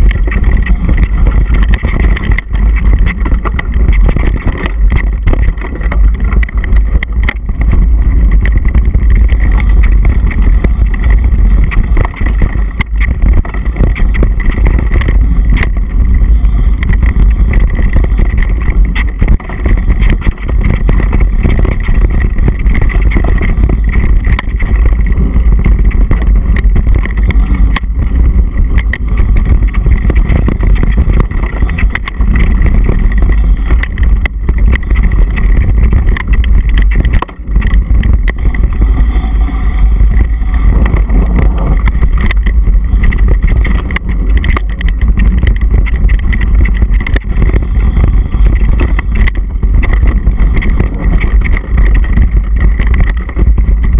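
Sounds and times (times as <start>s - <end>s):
wind buffeting microphone: 0.0s - 53.9s.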